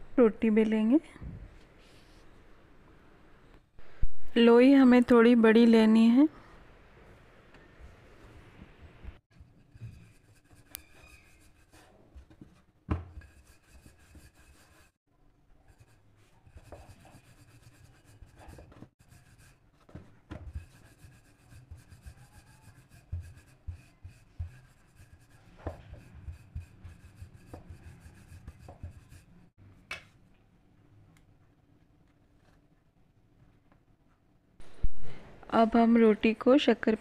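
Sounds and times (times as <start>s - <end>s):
rolling pin rubbing on dough: 13.1s - 15.0s, 15.6s - 29.5s.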